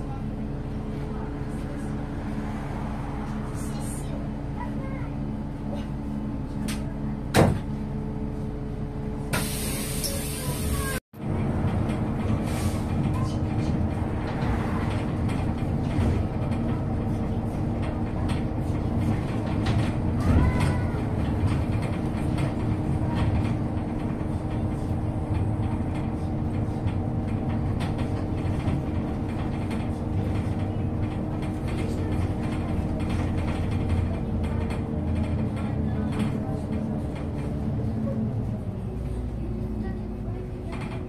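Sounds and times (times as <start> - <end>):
bus engine drone: 0.0 - 41.0
rattles and knocks from body: 11.6 - 37.9.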